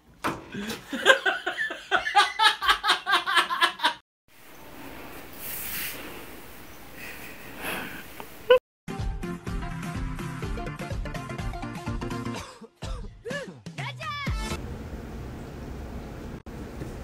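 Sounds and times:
person laughing: 0.5s - 4.0s.

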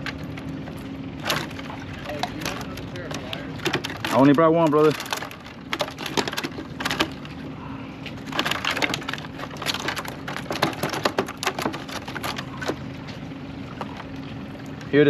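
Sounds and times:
rummaging through plastic crate: 1.2s - 7.4s, 8.1s - 12.9s.

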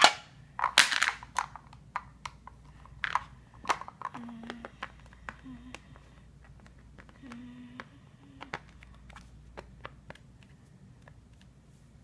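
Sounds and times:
plastic toy pieces clicking: 0.0s - 6.0s.

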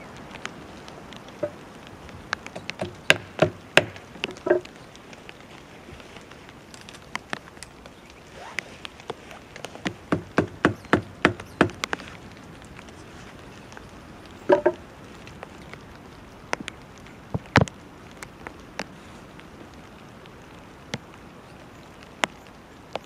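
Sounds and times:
hatchet knocking on wooden poles: 2.4s - 4.6s, 9.8s - 12.0s, 14.5s - 14.8s.

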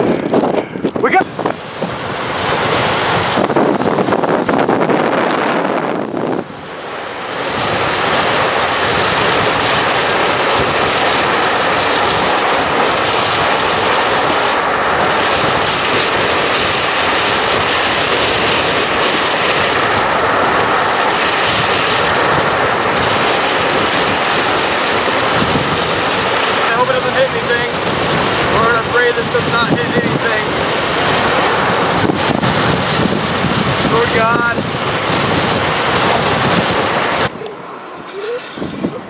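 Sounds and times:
vehicle road noise: 0.0s - 39.0s
wind buffeting microphone: 0.0s - 39.0s.

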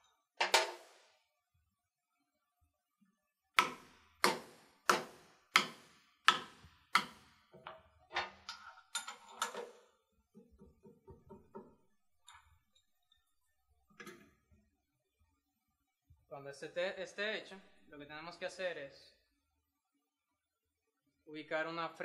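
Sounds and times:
mallet knocking on metal: 3.6s - 7.2s.

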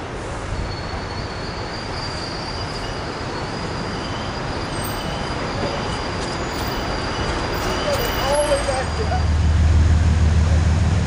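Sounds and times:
train wheels rumbling on rails: 0.0s - 11.0s.

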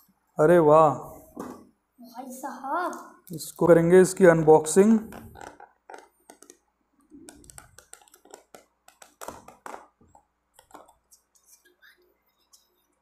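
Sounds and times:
plastic lid clicking and crackling: 7.2s - 11.0s.

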